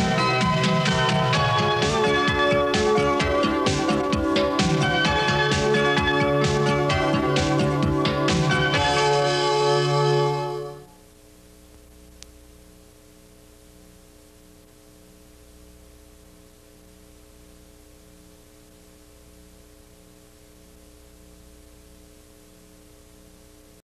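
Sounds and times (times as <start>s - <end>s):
closing music: 0.0s - 10.9s
faint electrical hum with hiss: 0.0s - 23.8s.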